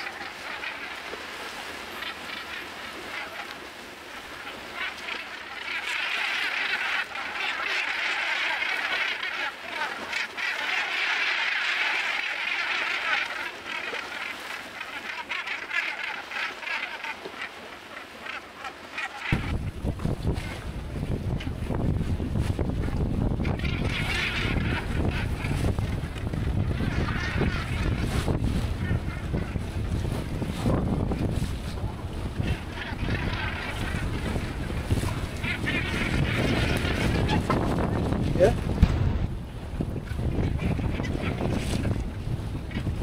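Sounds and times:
flock of seabirds calling: 0.0s - 21.8s, 22.6s - 39.1s, 39.7s - 43.0s
wind rumble on microphone: 19.2s - 43.0s.

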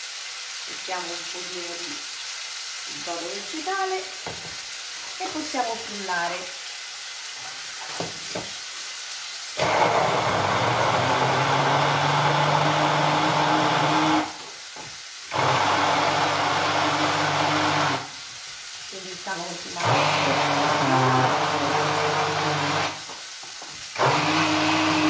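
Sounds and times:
electric blender whirring: 9.6s - 14.5s, 15.3s - 18.2s, 19.8s - 23.2s, 23.9s - 25.0s.

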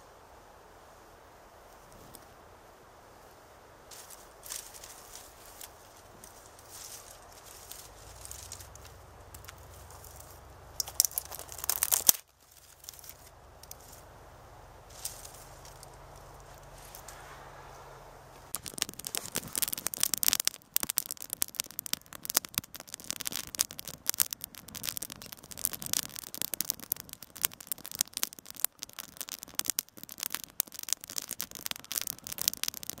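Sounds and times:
twigs crackling in fire: 3.8s - 33.0s.

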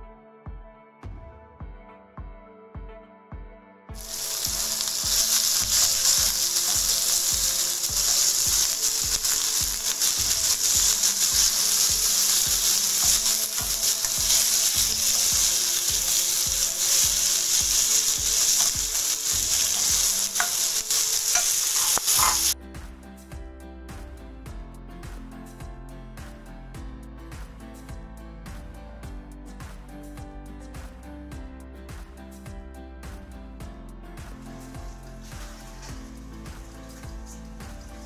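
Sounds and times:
food sizzling in hot oil: 4.0s - 22.6s, 34.6s - 38.0s
spatula scraping a pan: 4.0s - 22.6s, 35.0s - 38.0s.

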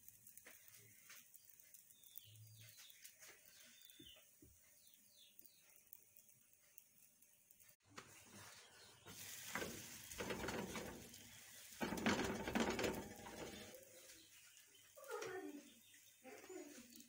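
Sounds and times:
dough scraping on a griddle: 7.6s - 14.1s.

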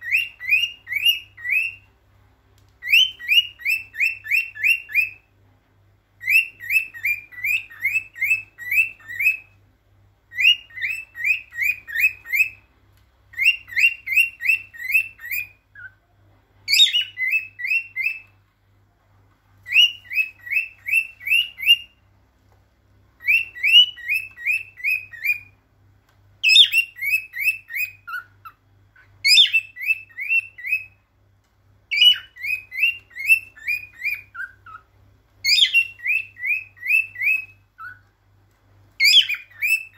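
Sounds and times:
cockatiel whistling song: 0.0s - 1.9s, 2.8s - 5.3s, 6.2s - 9.6s, 10.3s - 12.7s, 13.3s - 16.0s, 16.7s - 18.4s, 19.6s - 22.1s, 23.2s - 25.6s, 26.4s - 31.1s, 31.9s - 38.1s, 39.0s - 39.9s.

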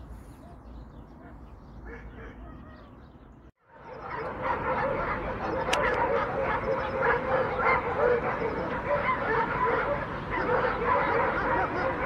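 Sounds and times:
dogs barking and yelping: 0.4s - 3.1s, 3.7s - 12.0s.

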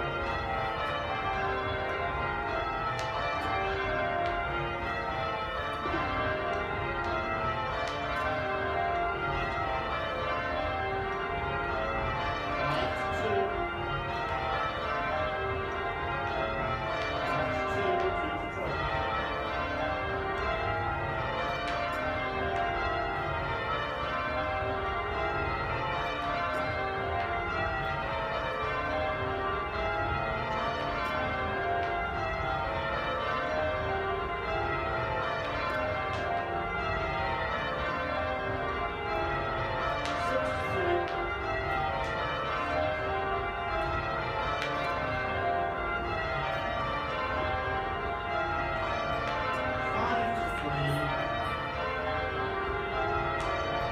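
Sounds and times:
church bells ringing: 0.0s - 53.9s.

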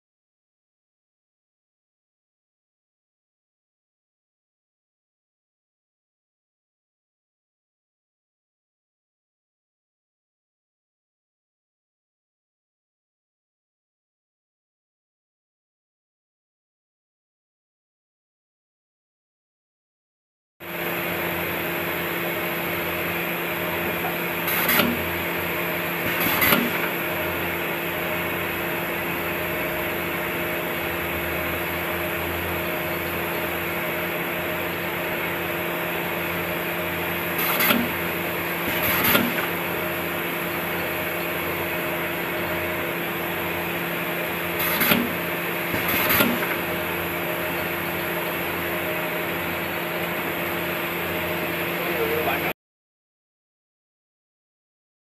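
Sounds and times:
machine mechanical hum: 20.7s - 52.6s
sharp mechanical clacks: 26.0s - 27.0s, 37.4s - 38.0s, 38.7s - 39.6s, 44.6s - 46.8s.

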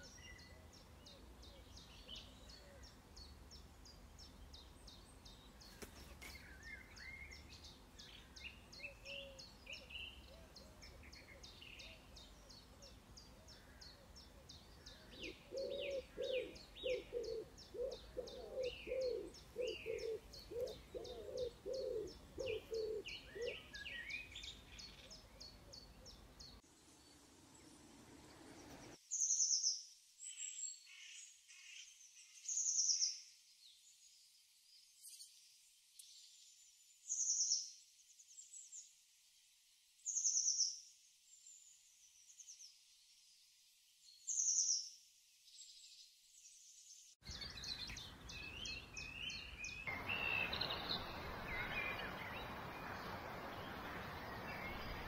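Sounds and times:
faint bird chirps: 0.0s - 33.3s, 47.2s - 55.0s
outdoor background noise: 0.0s - 55.0s
bird singing high falling call: 47.2s - 55.0s.

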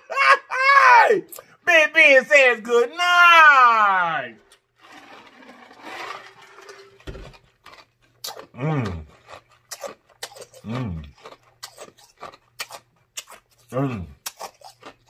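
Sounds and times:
man humming mmm: 8.6s - 9.1s, 10.6s - 11.1s.

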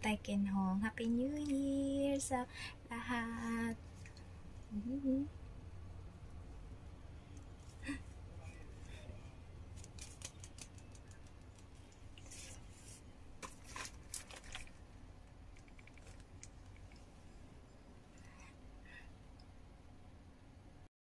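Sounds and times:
low room hum: 0.0s - 20.9s
paper rustling and clicks: 9.7s - 12.6s, 13.4s - 14.8s.

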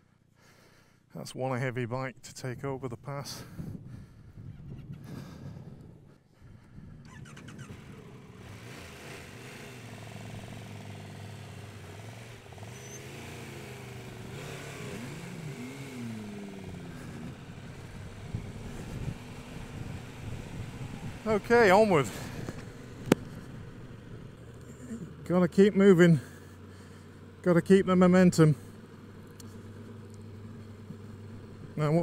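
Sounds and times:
motorcycle engine idling: 3.4s - 32.0s
motorcycle engine revving: 6.9s - 32.0s.

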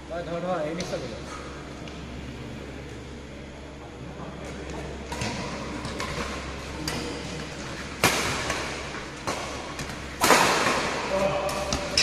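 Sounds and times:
rackets striking shuttlecock: 7.9s - 12.0s.

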